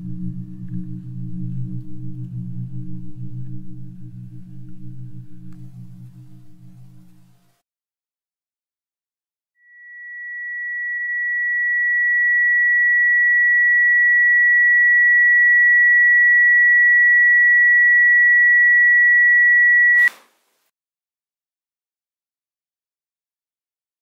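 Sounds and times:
high-pitched electronic tone: 0:09.6 - 0:20.1.

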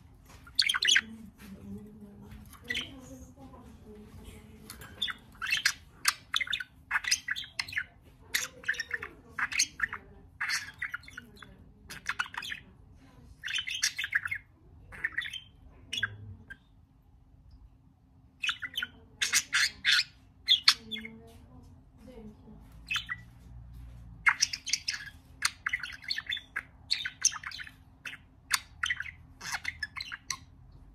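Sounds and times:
budgerigar chirping and chattering: 0:00.3 - 0:01.2, 0:02.4 - 0:03.2, 0:04.6 - 0:12.8, 0:13.4 - 0:16.7, 0:18.4 - 0:21.4, 0:22.6 - 0:30.9.

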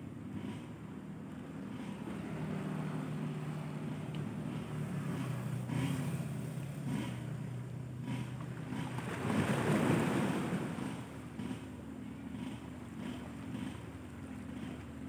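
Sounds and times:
steady low hum: 0:00.0 - 0:15.0
small waves washing on rocks: 0:08.6 - 0:11.1.

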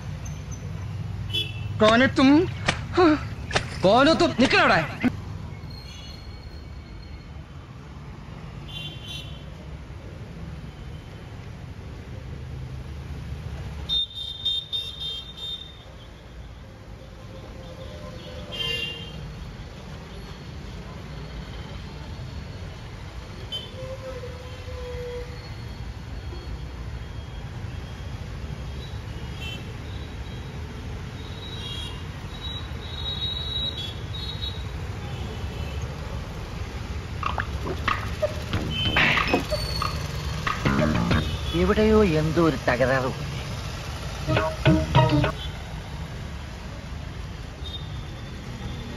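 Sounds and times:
street traffic: 0:00.0 - 0:48.9
short knocks and clicks: 0:37.2 - 0:41.4
motorcycles passing: 0:37.2 - 0:41.7.

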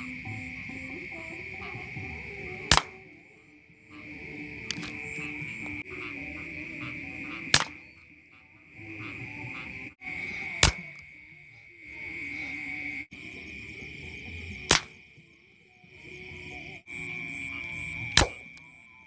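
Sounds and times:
night insects chirring: 0:00.0 - 0:19.0
air rifle shots: 0:02.7 - 0:03.0, 0:07.5 - 0:07.8, 0:10.6 - 0:10.8, 0:14.7 - 0:15.0, 0:18.2 - 0:18.5.

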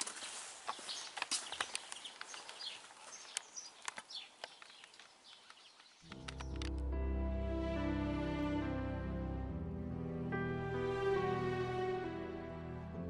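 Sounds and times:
small birds chirping: 0:00.2 - 0:06.8
sharp clicks: 0:03.3 - 0:06.9.

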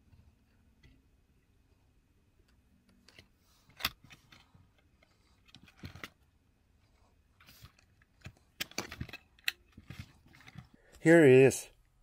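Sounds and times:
plastic clicks and rattles: 0:02.5 - 0:06.2, 0:07.4 - 0:10.8
soft rustle: 0:02.8 - 0:08.6.

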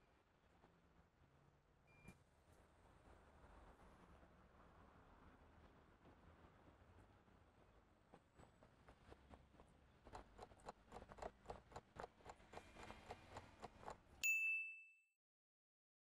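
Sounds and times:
clock ticking quickly: 0:10.1 - 0:14.2
bell ding: 0:14.2 - 0:15.2.

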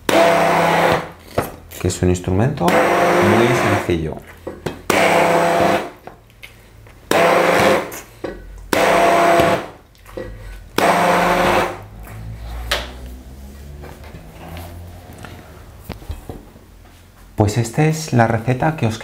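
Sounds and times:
hand blender motor whine: 0:00.0 - 0:01.2, 0:02.7 - 0:03.9, 0:04.9 - 0:06.0, 0:07.1 - 0:08.0, 0:08.7 - 0:09.8, 0:10.8 - 0:12.6.

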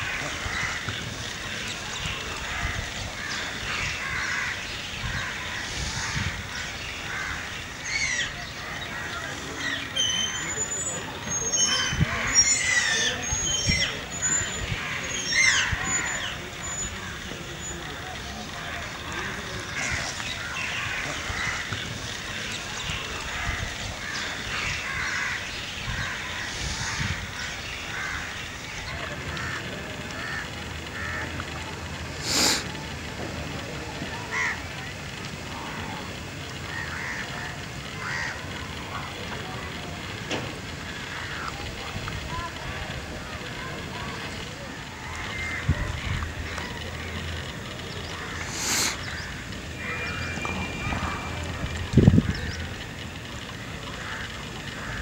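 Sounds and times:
crows cawing: 0:00.0 - 0:09.8, 0:14.6 - 0:17.8, 0:18.4 - 0:31.4, 0:34.3 - 0:34.7, 0:36.6 - 0:39.0, 0:40.8 - 0:41.6, 0:45.0 - 0:47.2, 0:48.0 - 0:50.8, 0:53.9 - 0:55.0
low steady rumble: 0:00.0 - 0:55.0
high sweeping call: 0:46.3 - 0:53.4.

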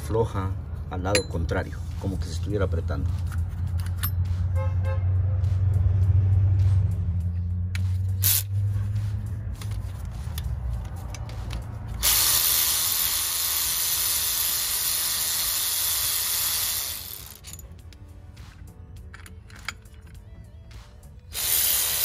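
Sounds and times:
electric ratchet motor running: 0:08.1 - 0:08.6, 0:12.0 - 0:17.4, 0:21.3 - 0:22.0.

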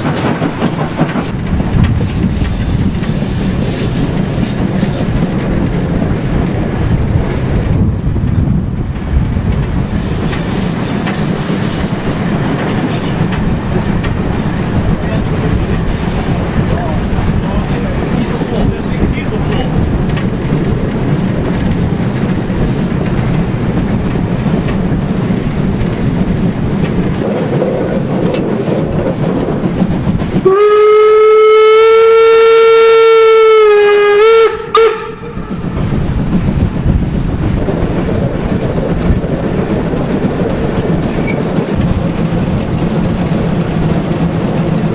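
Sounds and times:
wind noise: 0:00.0 - 0:32.6, 0:33.2 - 0:44.9
train running rumble: 0:00.0 - 0:44.9
steam locomotive whistle: 0:30.4 - 0:35.4.

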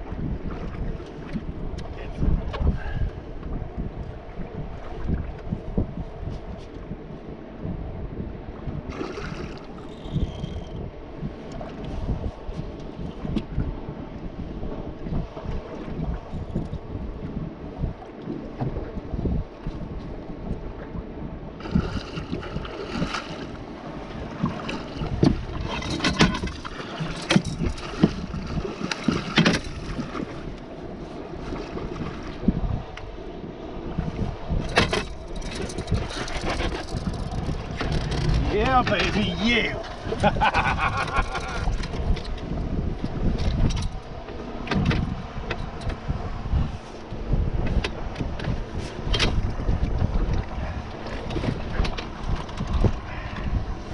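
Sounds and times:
choppy water: 0:00.0 - 0:53.9
knocks and clatters on boat: 0:00.0 - 0:53.9
wind buffeting microphone: 0:00.0 - 0:53.9
gear clicks and knocks: 0:24.4 - 0:30.2, 0:34.6 - 0:39.2, 0:41.3 - 0:46.0, 0:47.6 - 0:53.5.

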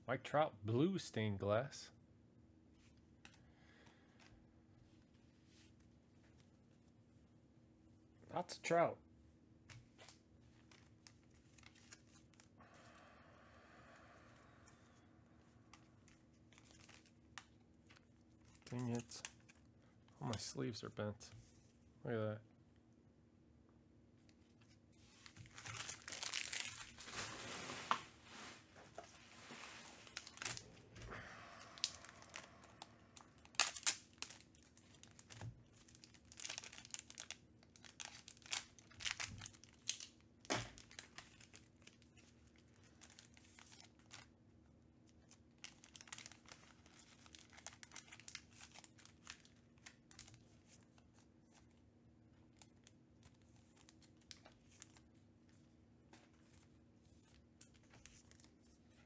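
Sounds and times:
plastic wrapping crinkling: 0:15.7 - 0:19.7, 0:24.5 - 0:30.8, 0:31.7 - 0:44.3, 0:45.1 - 0:51.7.

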